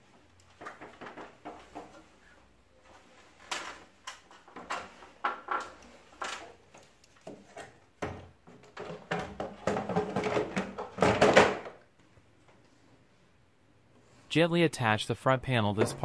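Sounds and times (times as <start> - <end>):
plastic clatter and scraping: 0.5 - 2.2, 2.9 - 11.8.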